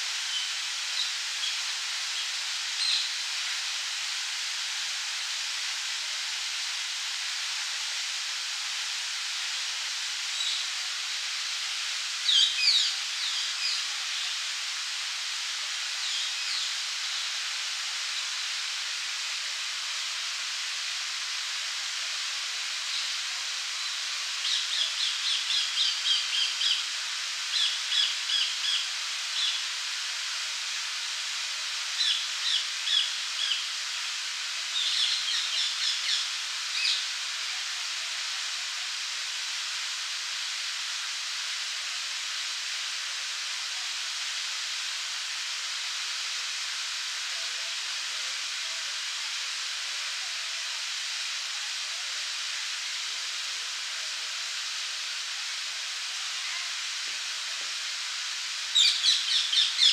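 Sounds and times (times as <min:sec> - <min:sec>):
small birds chirping: 0:58.7 - 0:59.9.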